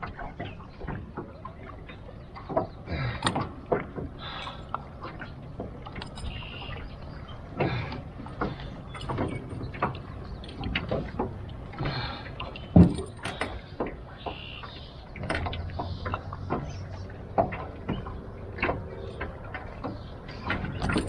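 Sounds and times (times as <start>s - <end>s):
pliers clicking against metal boat: 3.2s - 4.8s, 5.6s - 6.5s, 8.4s - 11.6s, 12.4s - 14.0s, 17.4s - 21.0s.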